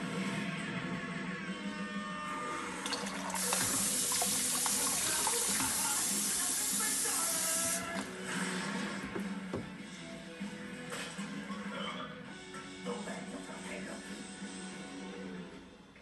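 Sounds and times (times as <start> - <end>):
tap water splashing into sink: 2.8 - 8.1.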